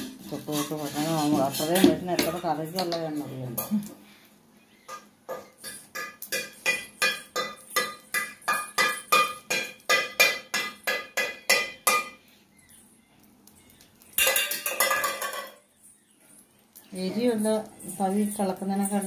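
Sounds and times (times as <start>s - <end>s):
metallic clatter: 14.1s - 15.6s.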